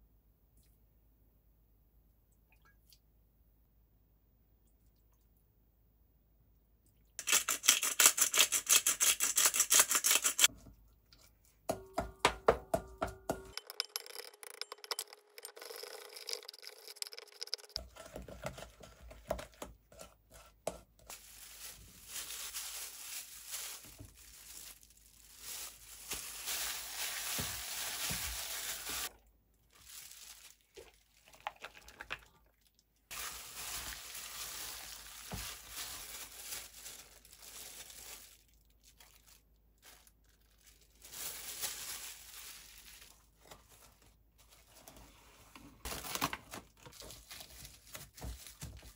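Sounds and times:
plastic glove crinkling: 7.2s - 10.5s, 14.0s - 44.9s, 45.8s - 48.9s
spoon stirring in steel bowl: 12.8s - 18.6s.

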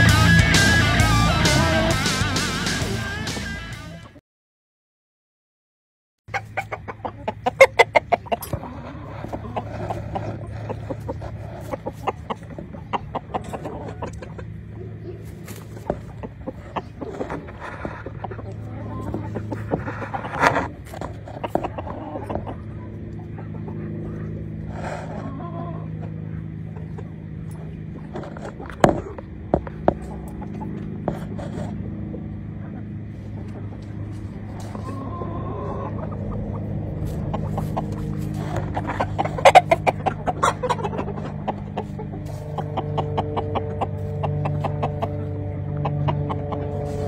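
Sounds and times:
background music with beat: 0.0s - 4.0s
rooster clucking: 6.3s - 47.0s.

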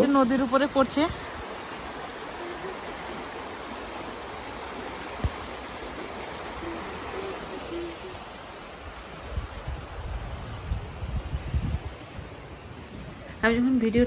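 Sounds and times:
river rushing: 0.0s - 13.5s
faint low hoots: 6.3s - 8.3s.

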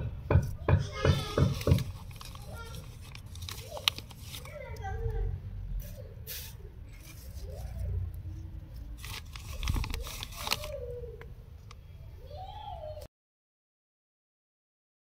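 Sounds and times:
plastic crinkling and rustling: 1.2s - 5.2s, 5.8s - 8.0s, 8.7s - 11.7s.

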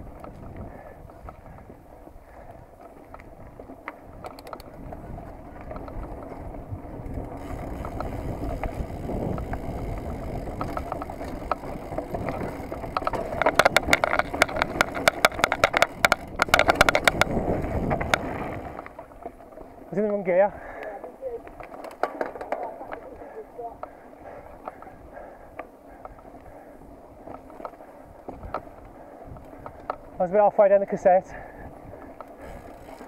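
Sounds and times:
wind on microphone: 0.0s - 19.0s, 25.9s - 30.2s
bike rattling and clattering: 0.0s - 33.0s.

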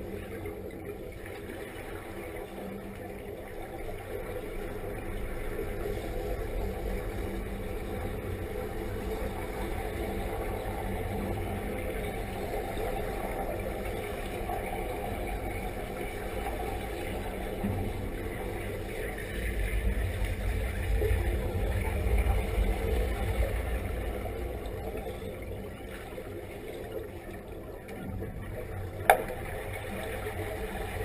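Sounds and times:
muffled underwater rumble: 0.0s - 31.0s
air bubbling underwater: 29.0s - 29.7s.

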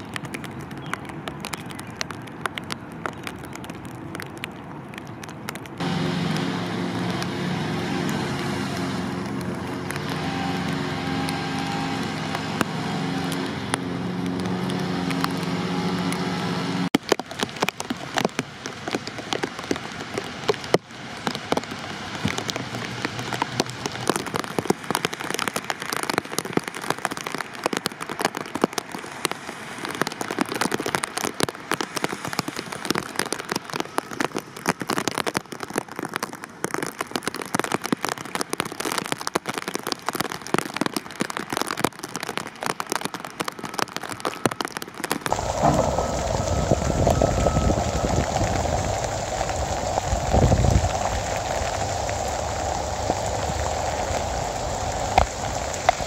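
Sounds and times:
rain on a hard surface: 0.0s - 56.0s
vehicle engine idling: 45.3s - 56.0s.

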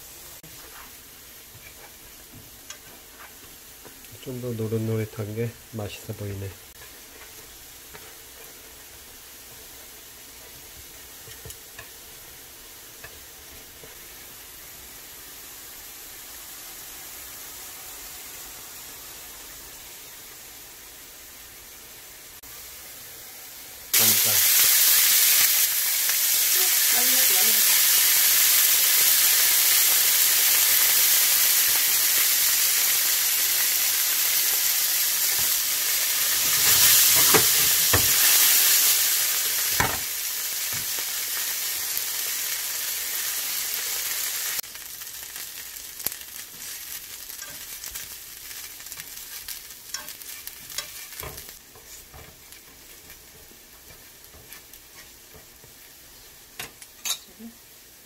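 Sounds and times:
food sizzling in oil: 0.0s - 58.0s
small crackles: 44.6s - 57.0s.

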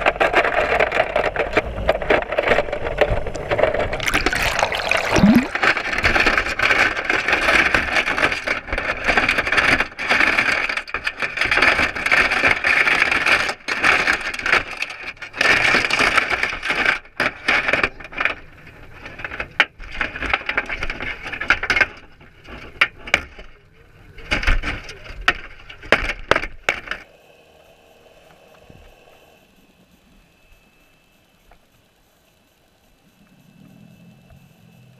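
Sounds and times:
water wash: 3.4s - 6.1s.

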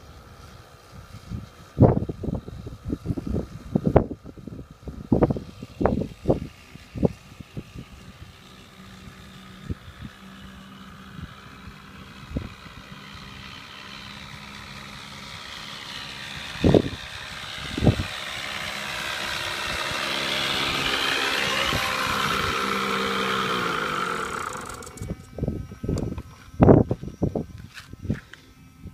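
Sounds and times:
model airplane engine: 0.0s - 28.9s.

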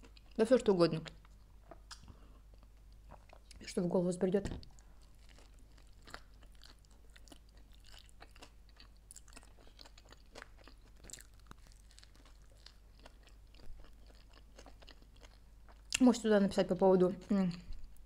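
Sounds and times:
chewing crunchy sandwich: 1.1s - 3.6s, 4.6s - 16.0s.

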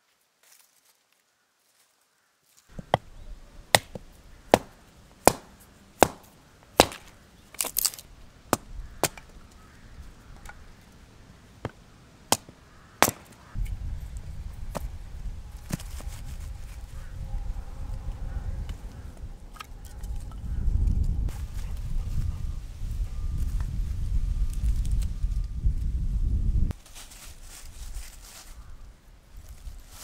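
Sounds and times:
axe chopping wood: 3.7s - 9.3s, 11.6s - 13.4s
low rumbling noise: 13.5s - 26.7s.

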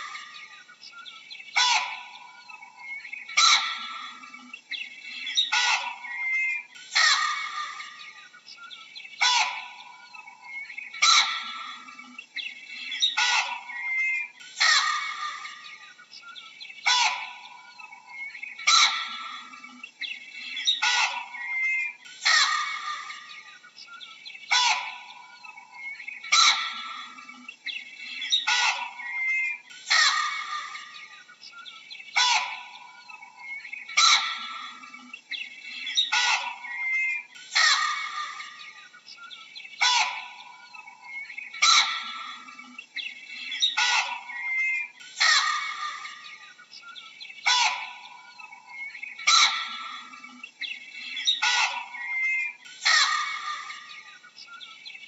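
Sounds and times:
faint chirps: 0.0s - 55.0s
baboon barking: 1.6s - 2.6s, 3.4s - 4.3s, 5.4s - 8.1s, 9.2s - 10.2s, 11.0s - 12.1s, 13.0s - 15.8s, 16.8s - 19.8s, 20.6s - 23.4s, 24.5s - 27.4s, 28.2s - 31.1s, 32.2s - 35.0s, 35.9s - 38.8s, 39.8s - 42.7s, 43.6s - 46.3s, 47.4s - 50.4s, 51.2s - 54.0s.

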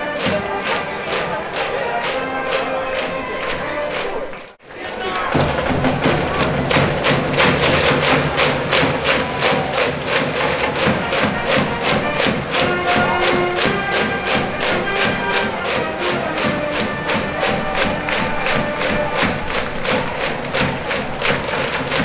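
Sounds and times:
brass horns melody: 0.0s - 22.0s
drums beating quickly: 0.0s - 22.0s.

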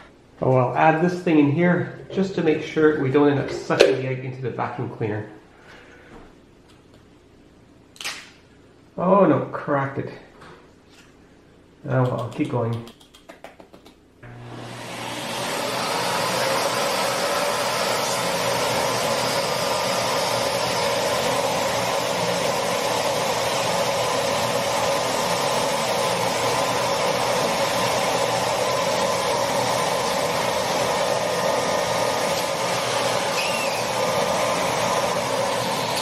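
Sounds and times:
vacuum cleaner running: 14.2s - 36.0s
faint whistle: 33.4s - 33.9s.

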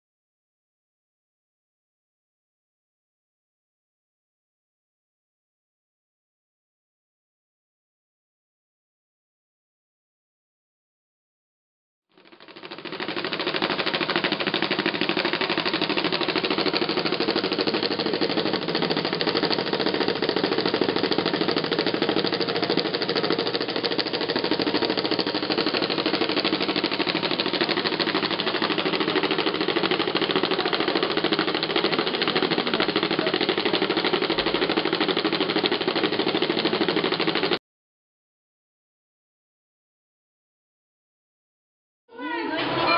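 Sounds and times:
embosser hammering rattle: 12.2s - 37.6s.

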